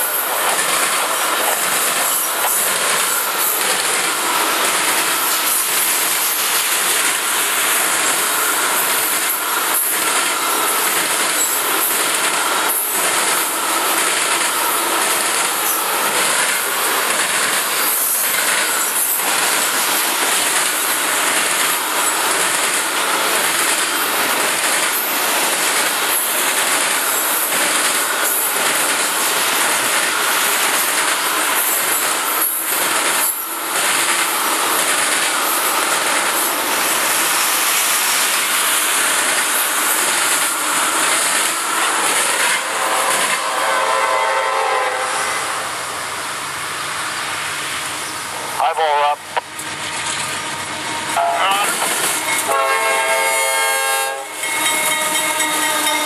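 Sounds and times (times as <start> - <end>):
steel wheels rushing on rail: 0.0 - 56.0
locomotive air horn: 42.6 - 45.7, 51.2 - 51.8, 52.4 - 54.4.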